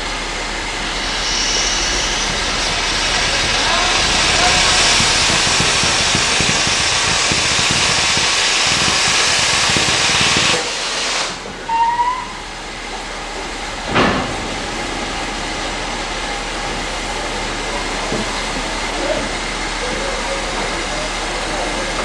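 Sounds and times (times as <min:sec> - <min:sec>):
steam hissing from safety valves: 0:00.0 - 0:12.5
short burst of escaping steam: 0:01.0 - 0:12.4.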